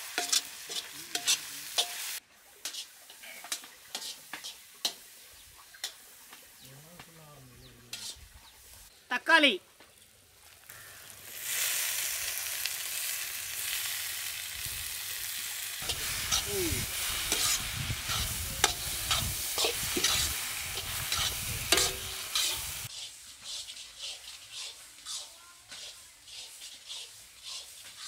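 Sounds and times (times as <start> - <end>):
spoon clicking and scraping pan: 0.0 - 6.0, 7.9 - 8.2, 15.8 - 22.7
onions sizzling in oil: 0.0 - 7.2, 7.9 - 9.0, 9.9 - 28.0.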